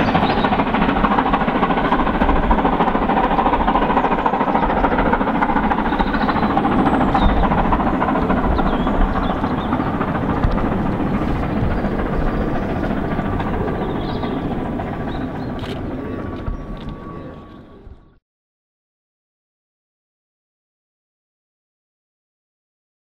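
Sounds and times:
steam locomotive exhaust rumble: 0:00.0 - 0:15.5.

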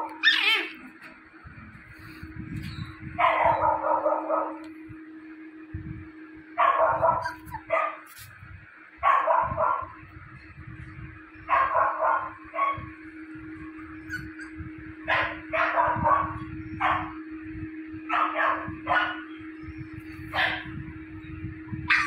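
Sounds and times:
puppy barking and yipping: 0:00.0 - 0:01.0, 0:03.2 - 0:04.6, 0:06.6 - 0:08.2, 0:14.0 - 0:17.0.

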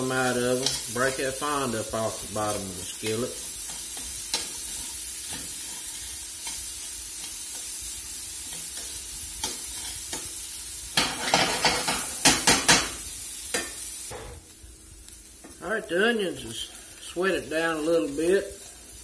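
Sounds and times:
onions sizzling in a skillet: 0:00.0 - 0:19.0
spatula scraping pan: 0:11.0 - 0:12.9.

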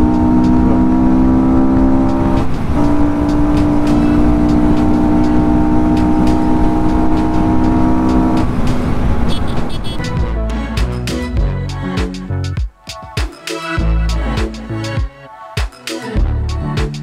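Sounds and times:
wind rumble: 0:00.0 - 0:10.4
motorcycle engine rumble: 0:00.0 - 0:10.5
steady tones: 0:00.0 - 0:11.4.

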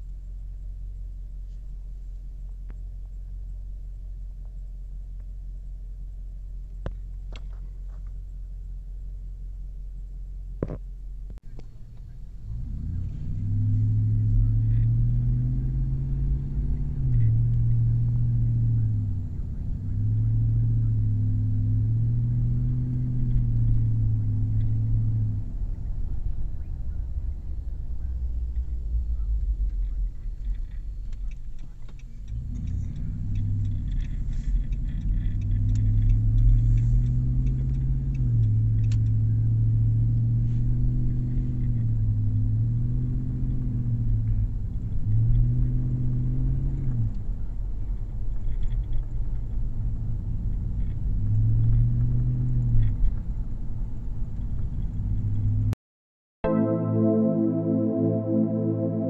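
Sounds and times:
engine revving: 0:12.0 - 0:53.8.

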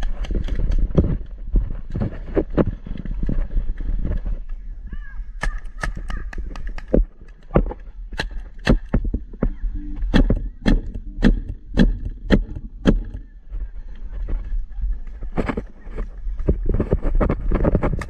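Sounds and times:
paintball marker firing: 0:05.4 - 0:07.5, 0:08.1 - 0:09.0, 0:10.1 - 0:13.2.

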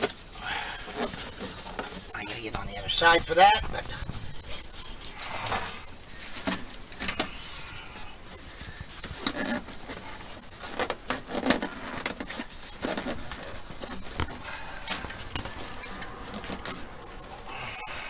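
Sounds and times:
rustling: 0:00.0 - 0:18.0.

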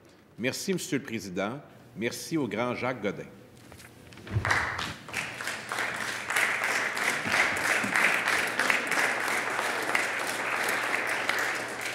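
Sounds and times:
people clapping: 0:04.2 - 0:11.9.

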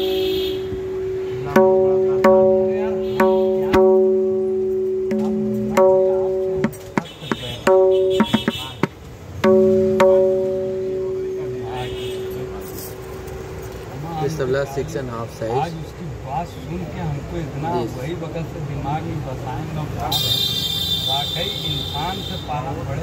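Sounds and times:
tabla drum strokes: 0:00.0 - 0:14.0.

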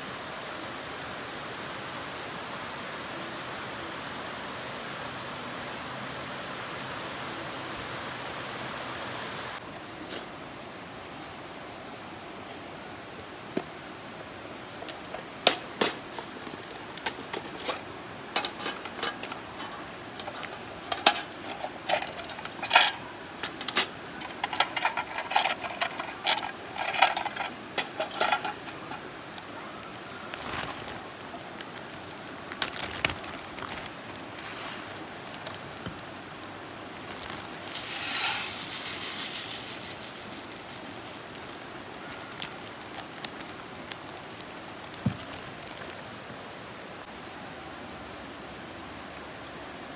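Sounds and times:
metal cookware clinking: 0:18.4 - 0:29.1
rice poured into metal tin: 0:37.6 - 0:41.4.

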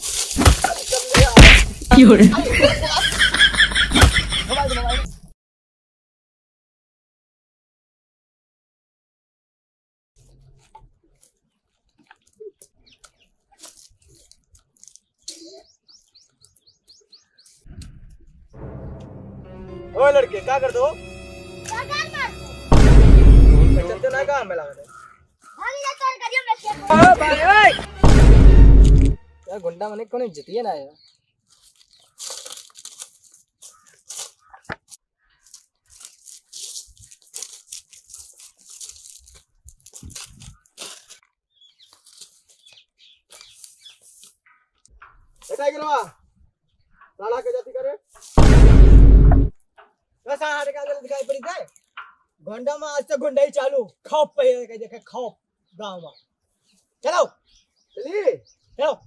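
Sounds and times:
footsteps on dry grass: 0:00.0 - 0:03.8, 0:10.6 - 0:15.3, 0:31.1 - 0:44.6, 0:45.2 - 0:45.7, 0:48.1 - 0:49.5
small birds chirping: 0:10.2 - 0:18.6, 0:24.7 - 0:26.9, 0:29.5 - 0:48.4, 0:49.8 - 0:52.6, 0:53.8 - 0:59.0.

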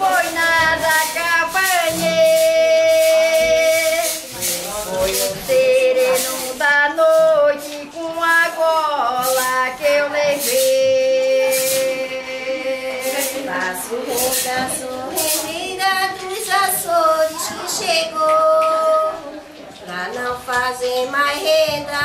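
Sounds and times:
women and children singing: 0:00.0 - 0:22.0.

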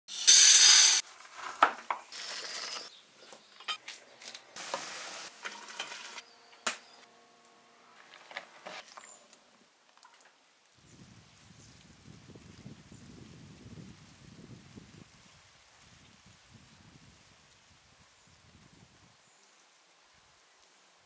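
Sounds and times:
food sizzling: 0:00.1 - 0:01.4, 0:04.6 - 0:06.4
utensils and cookware clinking: 0:03.6 - 0:03.8, 0:04.7 - 0:06.7.

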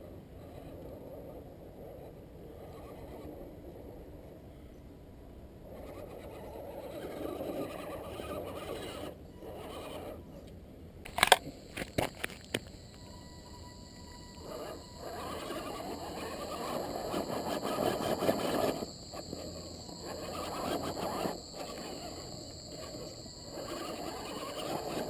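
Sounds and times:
electric motor and gears whining: 0:11.1 - 0:25.0.

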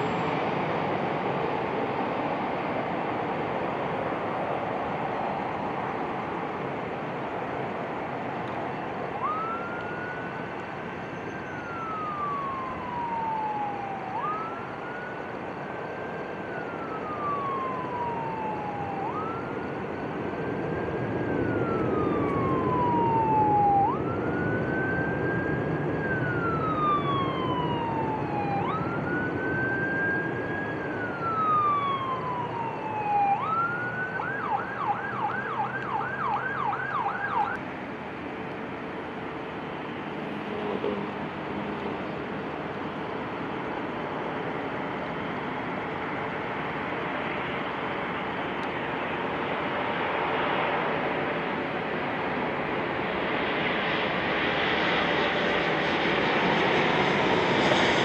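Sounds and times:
emergency siren wailing and yelping: 0:00.0 - 0:37.6, 0:38.8 - 0:58.0
traffic rumble: 0:00.0 - 0:58.0.

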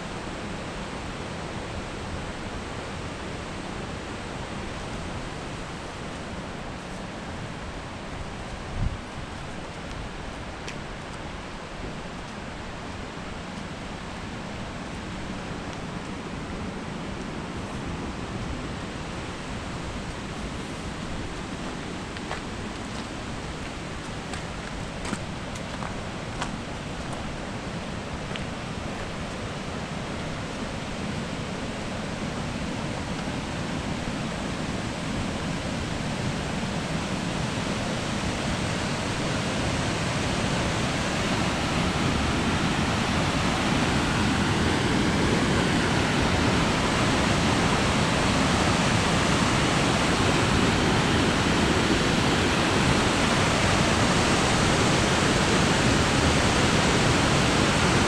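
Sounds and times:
white water rushing: 0:00.0 - 0:58.0.

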